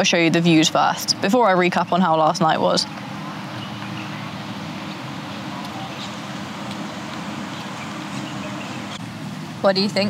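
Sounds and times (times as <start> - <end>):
vehicle running with hiss: 2.5 - 10.0.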